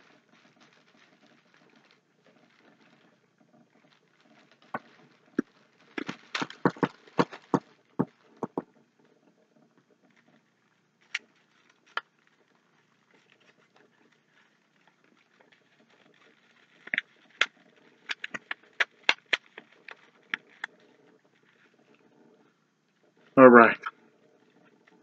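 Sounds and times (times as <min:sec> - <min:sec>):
candy wrapper crinkling: 0:00.0 - 0:03.1, 0:03.8 - 0:08.6, 0:11.0 - 0:21.7.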